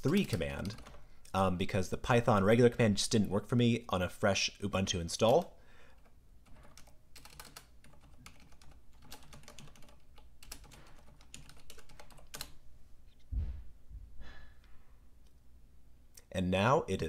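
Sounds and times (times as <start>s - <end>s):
dull low thump: 13.3s - 14.2s.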